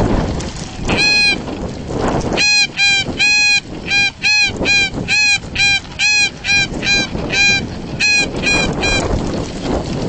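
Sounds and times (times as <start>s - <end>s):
goose call honks: 0.9s - 1.4s, 2.4s - 9.1s.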